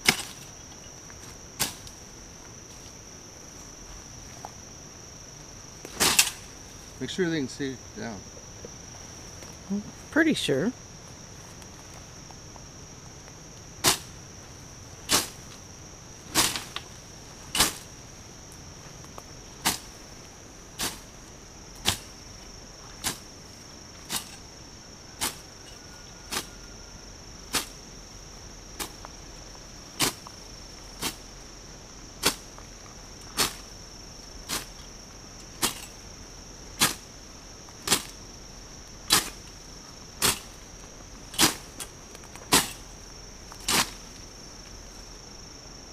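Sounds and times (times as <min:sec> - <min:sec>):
high insect drone: 0:00.0 - 0:45.9
blade swishing through weeds: 0:16.3 - 0:16.9, 0:40.2 - 0:40.6, 0:43.6 - 0:44.0.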